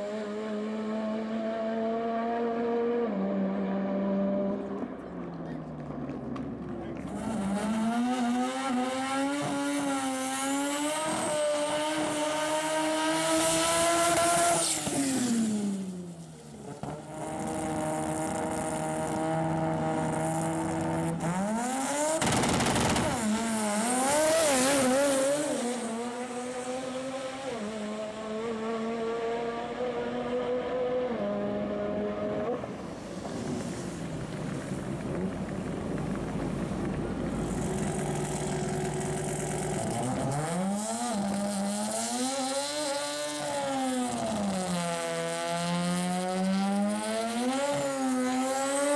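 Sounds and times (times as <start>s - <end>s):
rotary engine revving: 16.8s - 32.6s, 35.7s - 48.9s.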